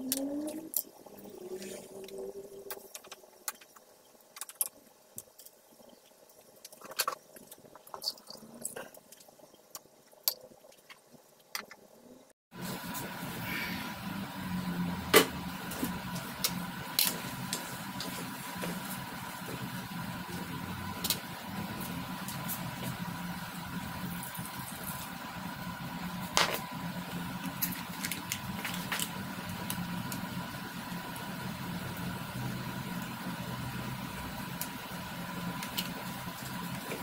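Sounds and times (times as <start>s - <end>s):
low hum: 0.0s - 3.5s, 12.6s - 37.0s.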